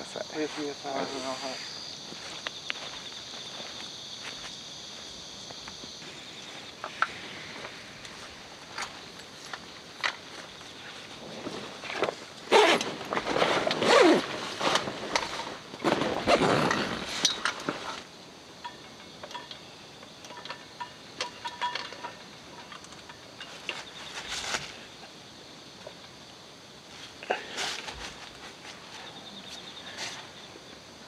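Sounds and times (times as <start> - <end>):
insects chirping: 0.0 - 31.0
rustling and handling gear: 6.4 - 18.0
faint ticks and clinks: 18.6 - 24.2.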